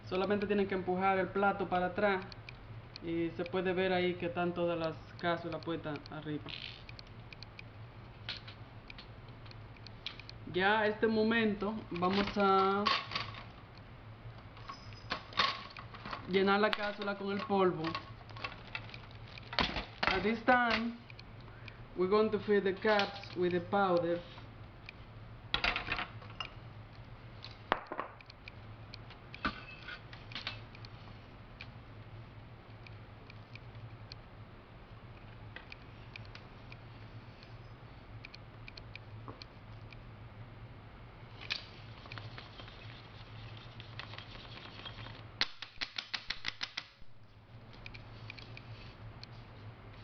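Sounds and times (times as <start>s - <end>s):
low steady hum: 0.0s - 45.6s, 47.0s - 50.0s
plastic clicks and knocks on stone: 27.7s - 28.3s, 45.4s - 47.0s.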